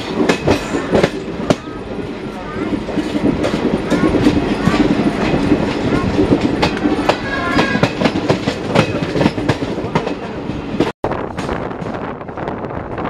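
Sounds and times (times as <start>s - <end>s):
steady train rumble: 0.0s - 13.0s
train wheels clattering over rails: 0.0s - 13.0s.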